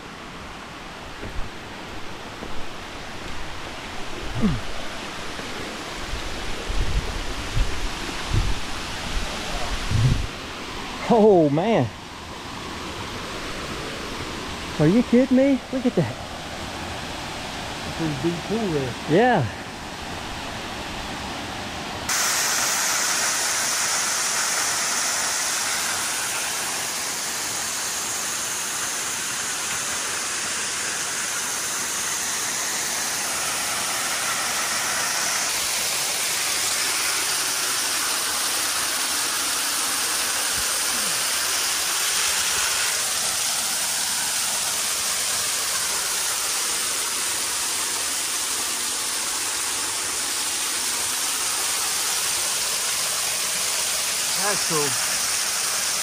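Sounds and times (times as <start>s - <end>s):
waterfall pouring onto rocks: 22.1s - 56.0s.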